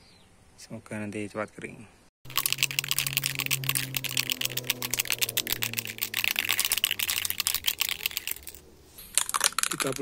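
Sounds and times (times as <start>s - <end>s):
spray can rattling: 2.3s - 10.0s.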